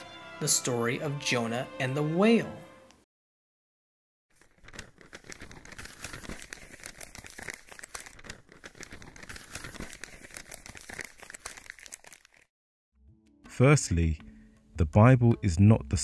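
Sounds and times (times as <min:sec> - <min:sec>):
paper rustling and crinkling: 0:04.3 - 0:12.5.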